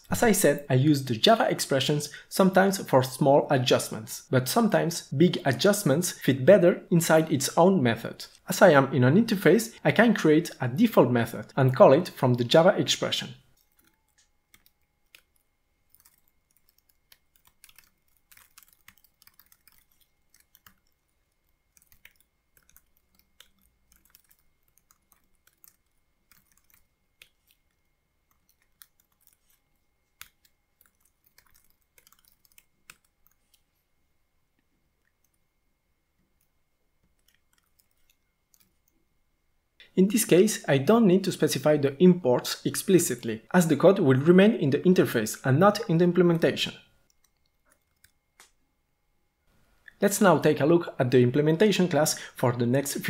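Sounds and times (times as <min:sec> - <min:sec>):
typing on computer keyboard: 0:13.6 - 0:29.6, 0:30.2 - 0:33.6, 0:37.0 - 0:38.8, 0:47.0 - 0:48.2.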